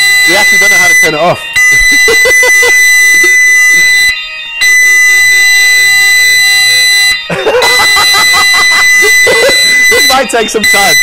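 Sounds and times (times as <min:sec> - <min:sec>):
fire alarm tone: 0:00.0 - 0:11.0.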